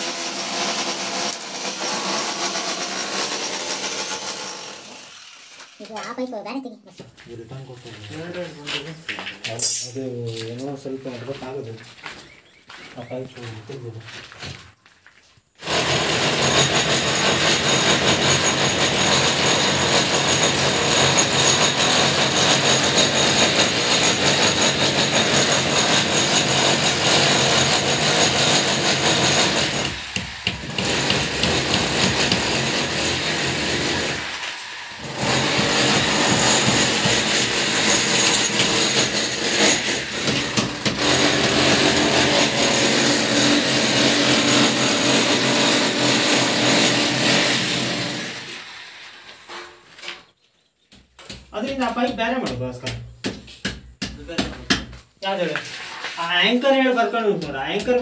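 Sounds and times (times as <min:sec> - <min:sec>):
power tool whining and grinding: 0:15.6 - 0:49.5.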